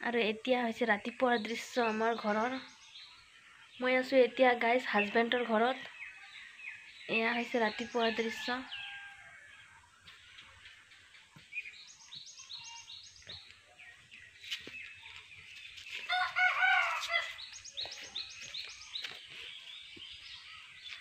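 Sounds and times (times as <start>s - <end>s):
small birds chirping: 0.0s - 21.0s
rooster crowing: 8.0s - 9.6s, 16.1s - 17.4s.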